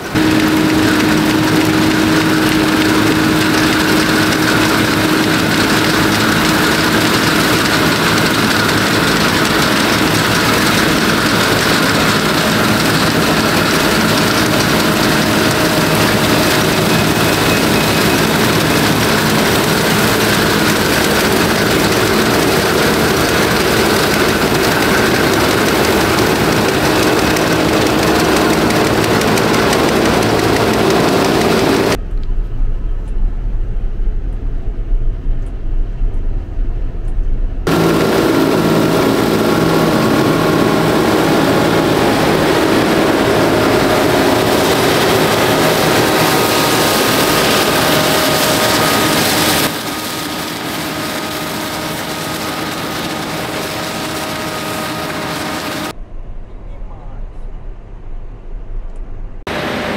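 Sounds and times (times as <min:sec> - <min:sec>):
combine harvester droning: 0:00.0 - 0:34.6, 0:37.6 - 0:58.5, 0:59.2 - 0:59.9
deep dull rumble: 0:31.4 - 0:37.7, 0:55.9 - 0:59.5.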